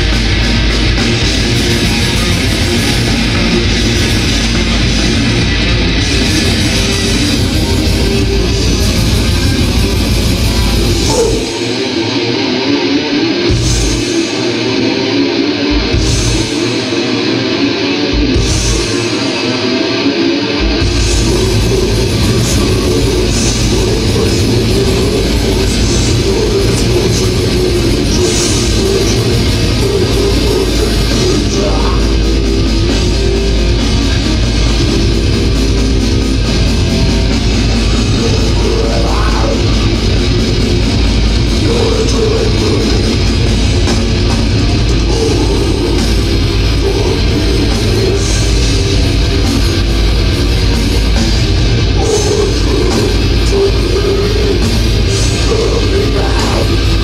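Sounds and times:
death metal band playing live: 0.0s - 57.0s
distorted guitar: 0.0s - 57.0s.

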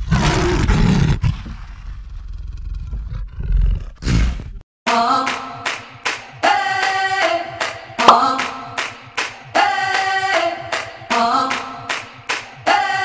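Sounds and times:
animal roar: 0.0s - 4.6s
music with singing: 4.9s - 13.0s.

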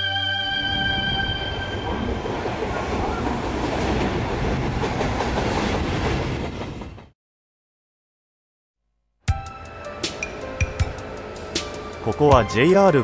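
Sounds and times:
background music: 0.0s - 2.4s, 9.3s - 13.0s
freight train passing: 0.0s - 7.1s, 9.4s - 13.0s.

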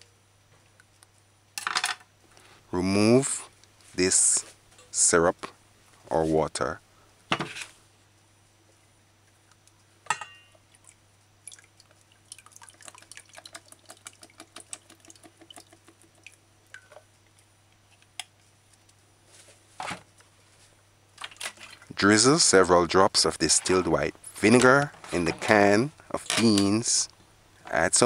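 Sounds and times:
liquid dripping into metal bowl: 10.2s - 17.5s.

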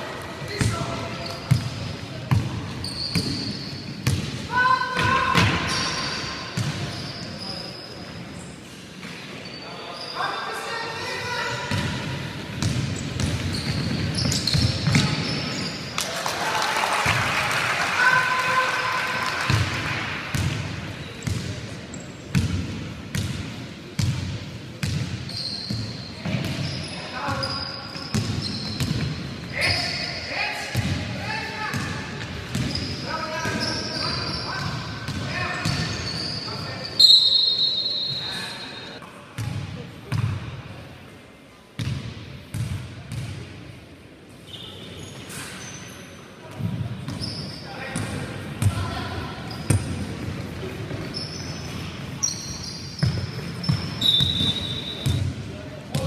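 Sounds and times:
short high squeaks: 13.5s - 15.9s, 51.0s - 55.1s.

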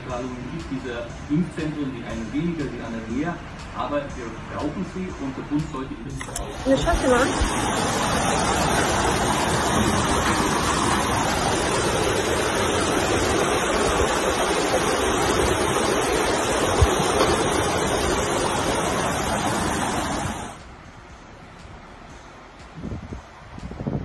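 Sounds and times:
rushing floodwater: 6.2s - 20.6s
heavy rain: 6.4s - 20.8s.

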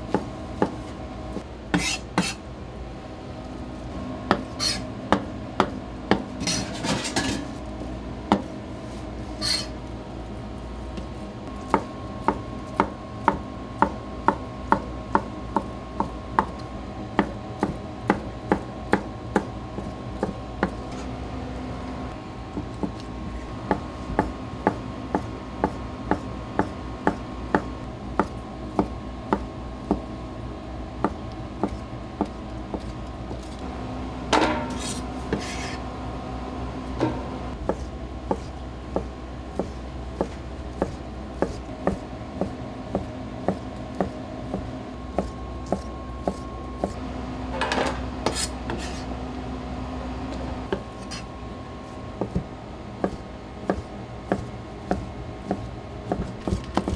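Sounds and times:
kitchen hum: 0.0s - 56.9s
knife chopping on cutting board: 1.7s - 2.4s, 4.3s - 7.0s, 8.3s - 8.5s, 11.0s - 16.6s, 17.2s - 21.0s, 22.6s - 23.1s, 23.7s - 30.1s, 31.0s - 33.5s, 37.0s - 47.0s, 48.2s - 49.1s, 52.2s - 56.9s
metal dishes clattering: 6.6s - 7.5s.

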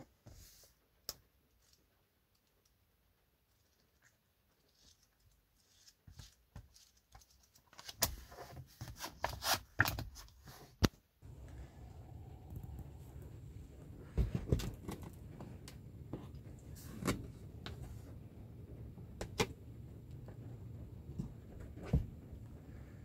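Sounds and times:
low steady rumble: 11.2s - 23.0s.

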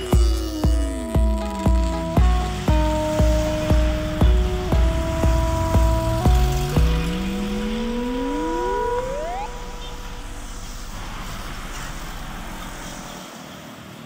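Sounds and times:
motorcycles passing: 0.0s - 13.5s
truck passing: 1.3s - 14.0s
passing road traffic: 1.4s - 14.0s
rising whistle-like glide: 3.3s - 13.2s.

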